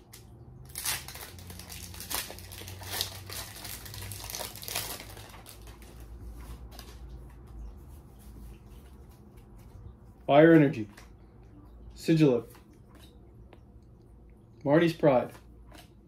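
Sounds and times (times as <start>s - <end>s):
foil wrapper crinkling: 0.2s - 7.1s.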